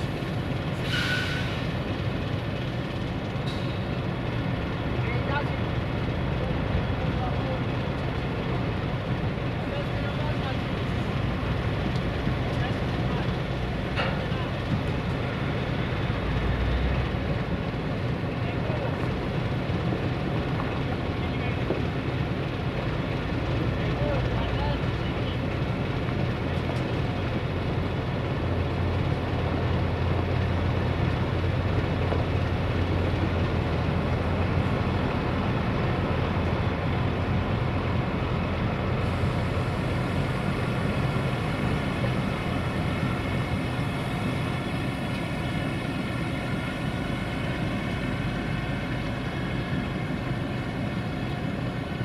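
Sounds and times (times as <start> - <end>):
diesel truck engine running: 0.0 - 52.0.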